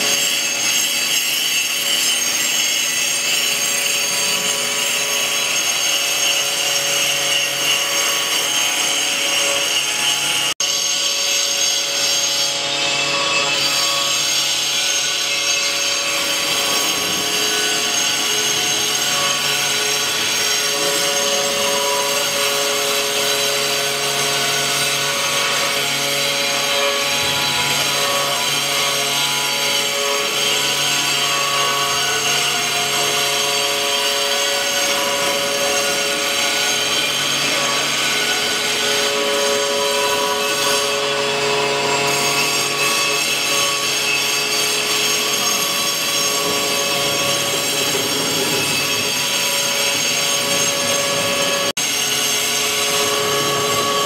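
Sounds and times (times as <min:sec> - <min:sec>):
cnc spindle machine whine: 0:00.0 - 0:54.0
metal cutting noise: 0:00.0 - 0:54.0.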